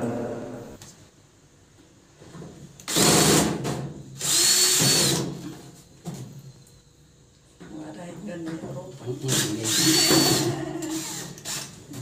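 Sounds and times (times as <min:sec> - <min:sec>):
cordless drill motor whine: 0:04.2 - 0:05.2, 0:09.3 - 0:11.8.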